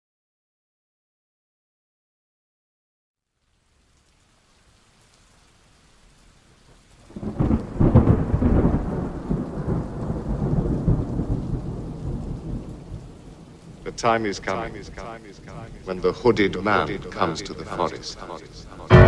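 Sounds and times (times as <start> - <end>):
rain hissing: 3.2 - 19.0
thunder rolling: 7.1 - 19.0.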